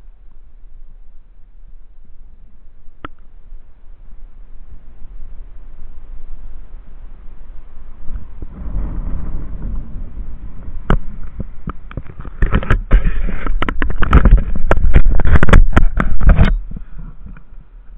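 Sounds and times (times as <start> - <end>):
wind buffeting microphone: 1.1 - 17.9
knocks and crackles: 8.0 - 17.9.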